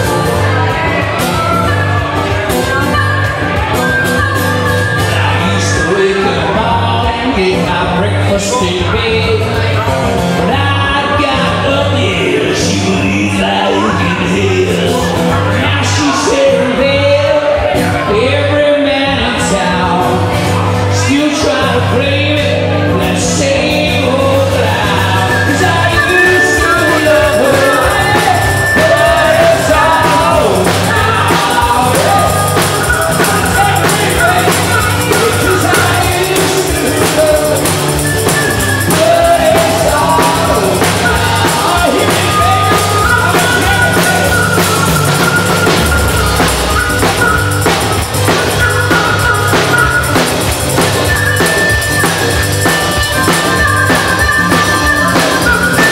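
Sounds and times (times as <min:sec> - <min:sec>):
bass: 0:00.0 - 0:55.9
strummed acoustic guitar: 0:00.0 - 0:55.9
harmonica solo: 0:24.8 - 0:55.9.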